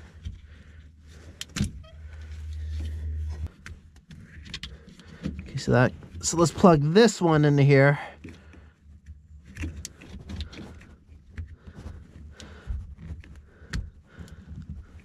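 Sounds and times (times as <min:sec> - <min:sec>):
low handling rumble: 0:01.2 - 0:03.6.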